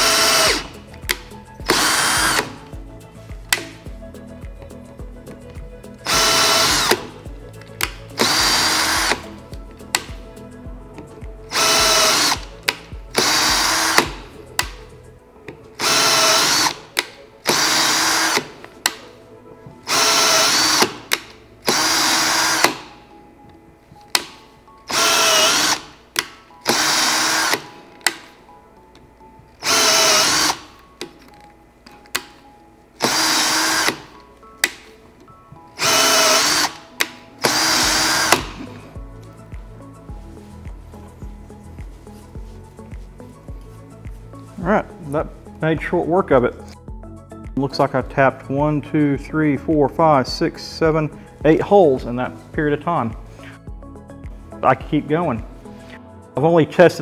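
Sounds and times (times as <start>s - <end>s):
cordless drill bursts: 0.0s - 0.9s, 1.6s - 2.6s, 6.0s - 7.2s, 7.8s - 9.4s, 11.5s - 14.3s, 15.8s - 18.6s, 19.8s - 22.9s, 24.9s - 26.0s, 26.6s - 27.8s, 29.6s - 30.8s, 33.0s - 34.2s, 35.8s - 38.7s.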